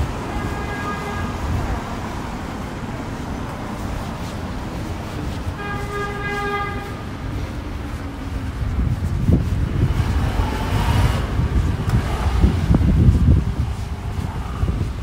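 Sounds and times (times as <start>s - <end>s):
street traffic rumble: 0.0s - 15.0s
vehicle horn: 0.2s - 1.6s, 5.4s - 7.4s.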